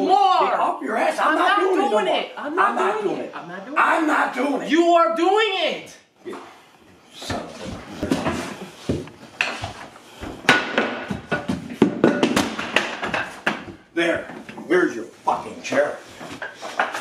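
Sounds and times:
wooden chair banging on floor: 7.3s - 14.7s.

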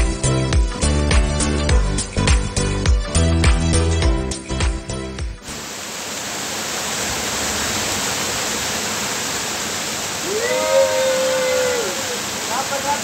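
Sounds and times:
small waterfall rushing: 5.4s - 13.0s.

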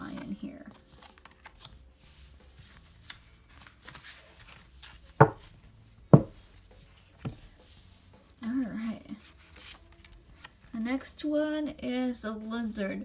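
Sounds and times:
cards rustling: 0.0s - 5.5s, 9.2s - 10.6s
sharp knocks on table: 5.2s - 5.4s.

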